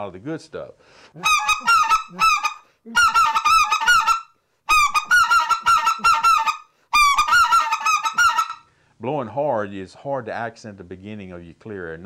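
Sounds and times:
goose call honks and clucks: 1.2s - 8.7s.

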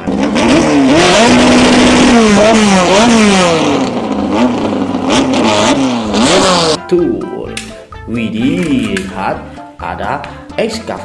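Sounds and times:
car engine revving hard: 0.0s - 6.8s.

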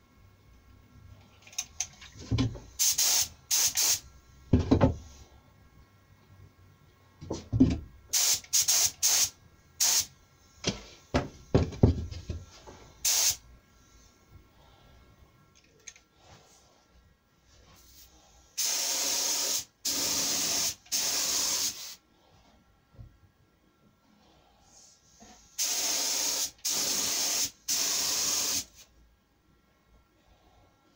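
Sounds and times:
spray gun hissing: 2.8s - 4.0s, 8.1s - 10.1s, 13.0s - 13.4s, 18.6s - 22.0s, 25.6s - 28.8s.

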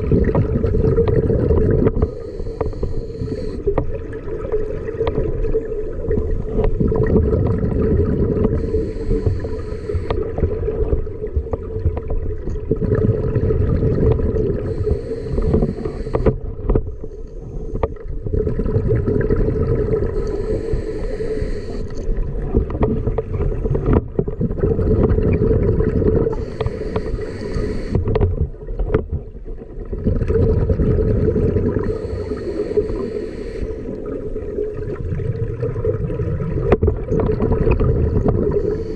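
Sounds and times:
underwater bubbling rumble: 0.0s - 38.9s
regulator breathing hiss: 2.0s - 3.7s, 8.6s - 10.2s, 14.6s - 16.4s, 20.1s - 22.0s, 26.3s - 28.1s, 31.8s - 34.1s, 38.6s - 38.9s.

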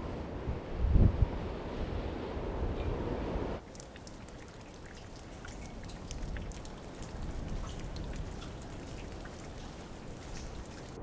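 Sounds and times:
water drops pattering: 3.6s - 11.0s.

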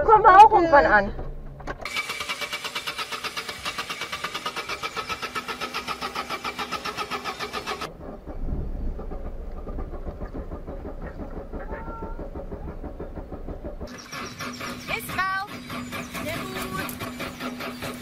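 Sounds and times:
starter motor cranking engine: 1.3s - 18.0s
low rumble: 7.9s - 18.0s.

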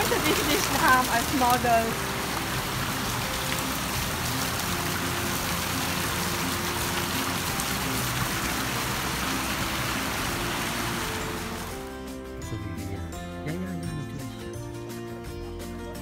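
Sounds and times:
fountain water splashing: 0.0s - 12.2s.

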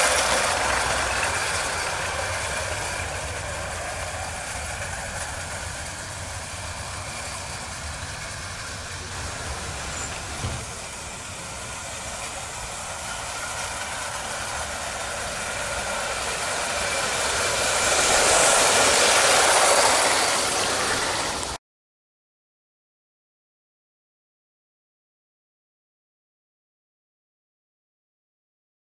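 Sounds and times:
model steam train running: 0.0s - 21.6s.

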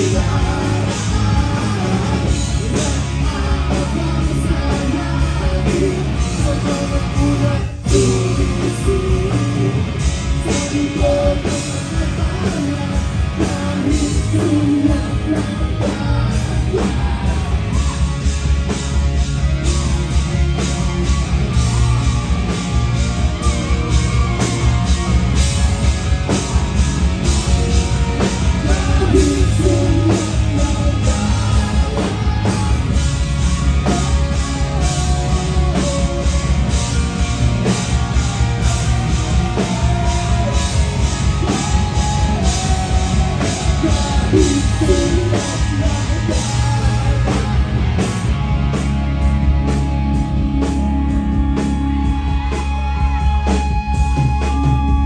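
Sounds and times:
person singing: 0.0s - 18.3s, 28.2s - 48.3s
live rock band playing: 0.0s - 55.0s.

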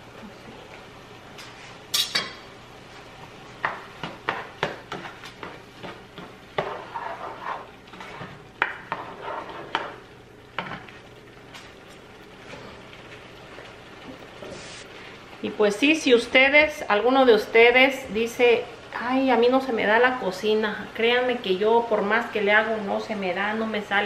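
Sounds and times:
spoon scraping cooking pot: 4.3s - 10.0s.

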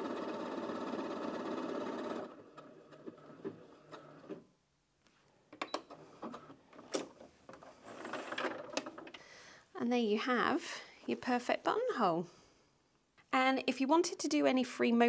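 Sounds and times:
sewing machine stitching: 0.0s - 4.5s, 7.6s - 9.0s.

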